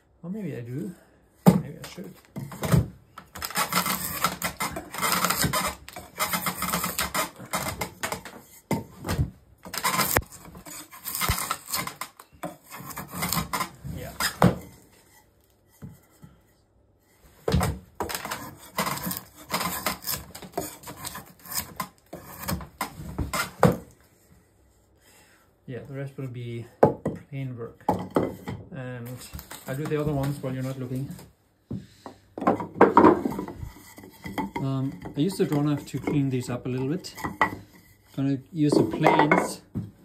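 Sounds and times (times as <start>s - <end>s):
drawknife scraping wood: 1.8s - 16.1s, 18.0s - 23.9s, 32.8s - 36.2s.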